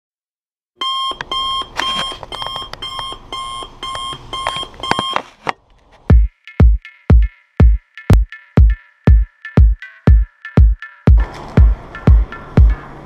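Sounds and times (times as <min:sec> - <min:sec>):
alarm clock beeping: 0:00.8 - 0:05.2
music with heavy kick drum: 0:06.1 - 0:12.8.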